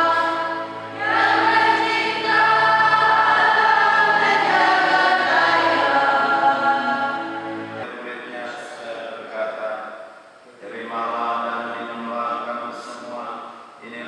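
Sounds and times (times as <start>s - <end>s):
voices singing liturgical chant: 0.0s - 7.9s.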